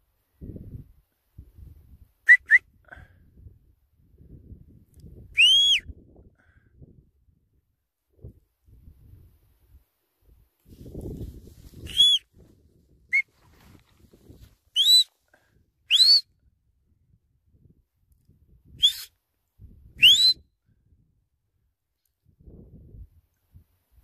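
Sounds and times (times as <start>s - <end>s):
sharp whistle notes: 5.4s - 5.9s, 11.8s - 12.2s, 14.8s - 15.1s, 15.9s - 16.3s, 18.8s - 19.1s, 20.0s - 20.4s.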